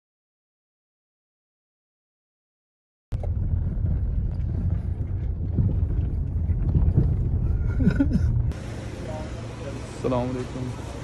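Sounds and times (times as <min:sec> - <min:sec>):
wind on microphone: 0:03.1 - 0:08.5
road traffic rumble: 0:03.2 - 0:11.0.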